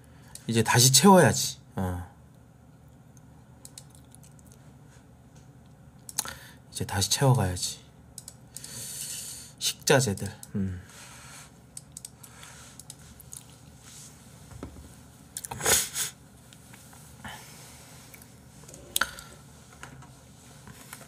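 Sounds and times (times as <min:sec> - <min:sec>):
faint handling sounds: 0:16.4 - 0:21.0.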